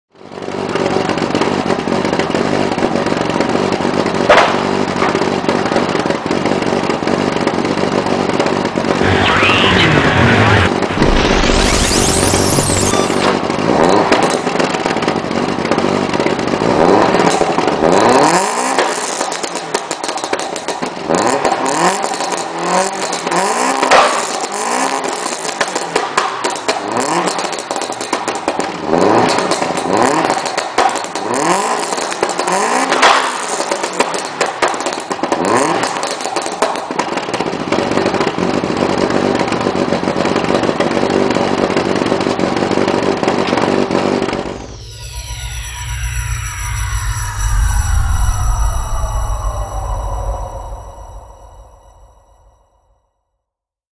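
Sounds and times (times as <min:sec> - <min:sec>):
car engine revving: 0:00.4 - 0:19.3
exhaust crackles: 0:04.9 - 0:17.8.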